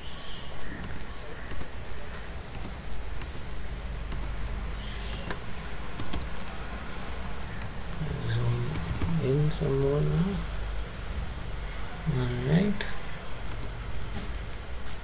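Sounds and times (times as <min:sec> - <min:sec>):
low steady hum: 0:00.0 - 0:14.9
keyboard keys clicking: 0:00.7 - 0:04.4, 0:05.1 - 0:05.4, 0:06.0 - 0:08.0, 0:08.7 - 0:09.2, 0:13.3 - 0:15.0.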